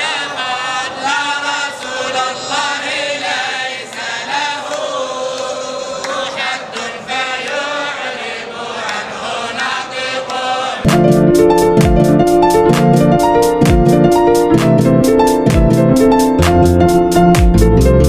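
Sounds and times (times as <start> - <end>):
men chanting together: 0.0 - 10.9.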